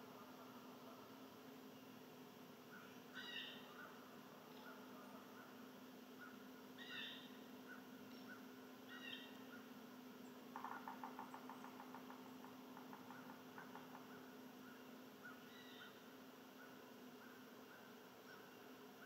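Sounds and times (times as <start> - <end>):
faint wild bird calls: 0.0 - 19.0
bird chattering trill: 6.2 - 9.7.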